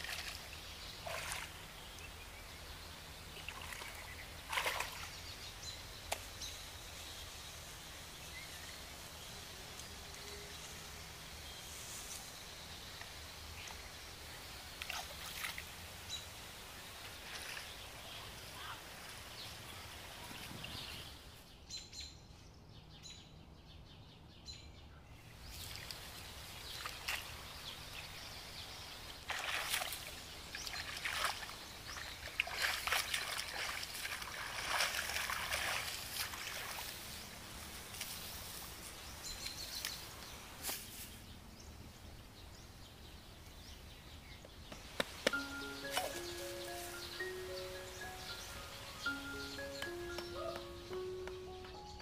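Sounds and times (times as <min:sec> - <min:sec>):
hands splashing in muddy water: 0:29.3 - 0:37.0.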